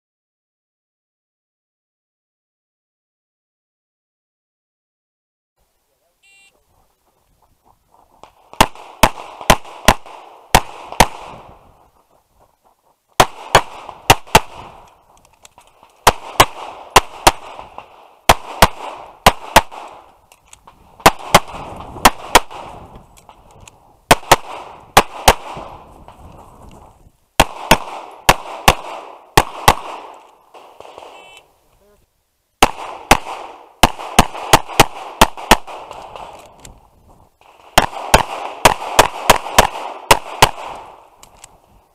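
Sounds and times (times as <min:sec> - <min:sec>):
pistol shots: 0:08.2 - 0:11.7, 0:13.2 - 0:15.0, 0:15.8 - 0:20.1, 0:21.0 - 0:23.0, 0:24.1 - 0:25.9, 0:27.4 - 0:31.4, 0:32.6 - 0:36.7, 0:37.4 - 0:41.4
gunshot echo: 0:08.2 - 0:11.8, 0:13.2 - 0:14.9, 0:16.0 - 0:20.1, 0:21.0 - 0:23.0, 0:24.1 - 0:25.9, 0:27.4 - 0:31.4, 0:32.6 - 0:36.5, 0:37.4 - 0:41.2.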